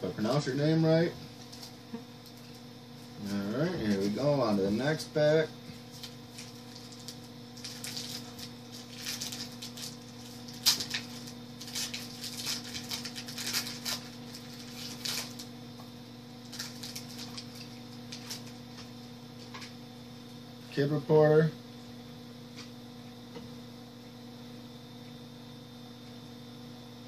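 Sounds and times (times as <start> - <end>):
steady low hum: 0.0 - 27.0
wrapper crinkling: 5.9 - 15.5, 16.4 - 18.8.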